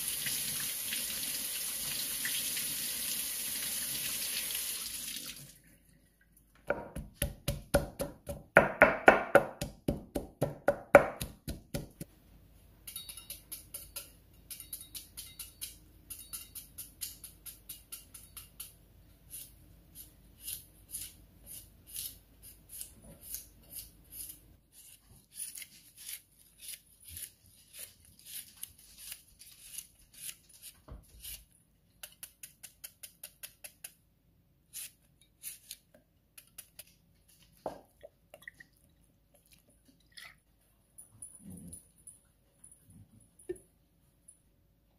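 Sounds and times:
knife chopping cucumber: 6.7 - 12.1.

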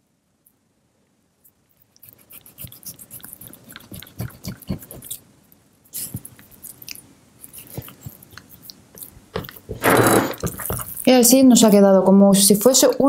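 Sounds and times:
knife cutting on wooden board: 2.0 - 5.2, 7.5 - 11.0.

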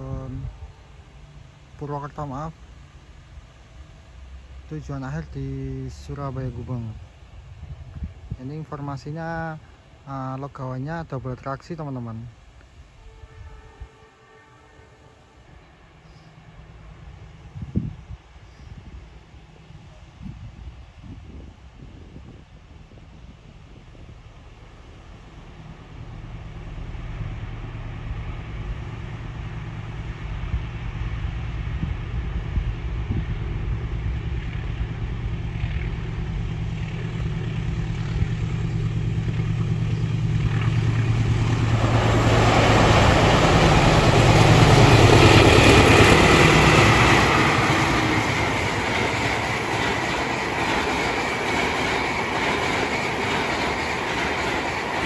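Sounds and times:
locomotive engine drone: 0.0 - 20.2, 23.0 - 55.0
train wheels rushing: 26.7 - 55.0.

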